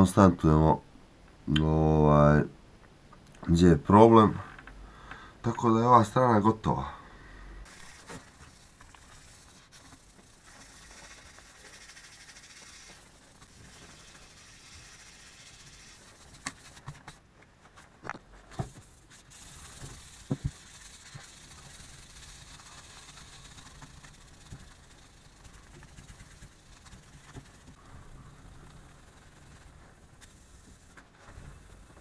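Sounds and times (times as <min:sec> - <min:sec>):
sandpaper rubbing on metal: 0:07.7 - 0:17.2, 0:18.7 - 0:31.8.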